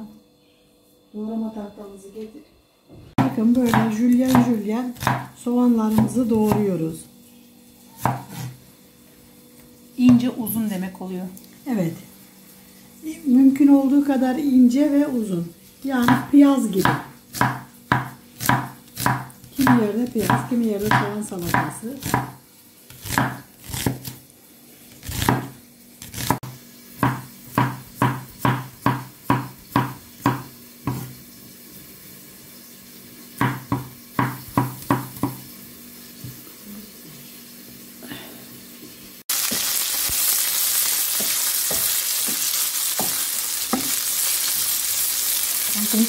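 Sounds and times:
knife chopping on wooden board: 0:03.2 - 0:06.7, 0:08.0 - 0:08.6, 0:16.0 - 0:24.2, 0:25.0 - 0:31.2, 0:33.4 - 0:35.4, 0:41.2 - 0:42.4, 0:43.0 - 0:44.0
green beans sizzling in frying pan: 0:11.4 - 0:23.1, 0:24.2 - 0:46.0
wooden spoon knocking pan: 0:41.2 - 0:44.0.

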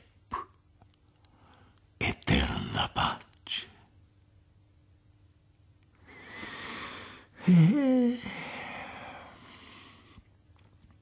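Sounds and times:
man inhaling: 0:06.0 - 0:10.2.

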